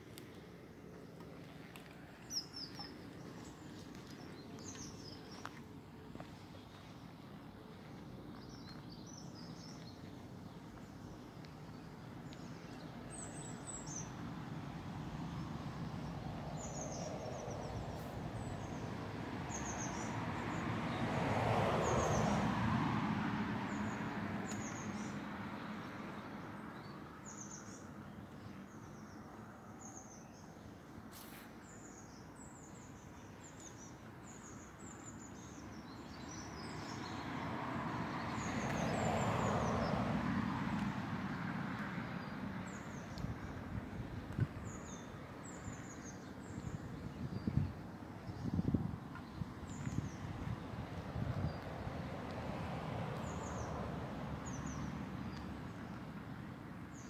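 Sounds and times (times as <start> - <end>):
small birds chirping: 0.2 - 14.2, 42.2 - 51.7
vehicle passing by: 14.6 - 26.8, 36.2 - 44.0, 48.4 - 56.2.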